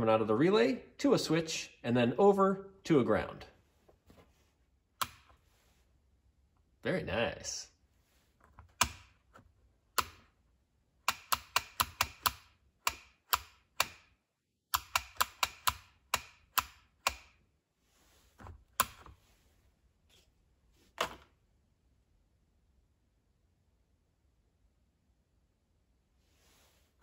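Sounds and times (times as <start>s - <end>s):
switch and relay clicking: 5.0s - 5.4s, 8.7s - 9.2s, 9.9s - 10.3s, 11.0s - 14.1s, 14.7s - 17.4s.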